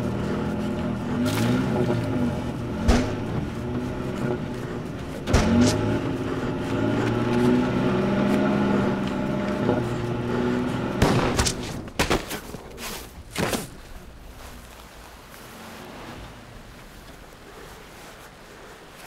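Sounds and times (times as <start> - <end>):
truck engine revving: 0.0 - 12.0
heavy thump: 2.7 - 6.0
sharp gunshots: 11.0 - 11.8.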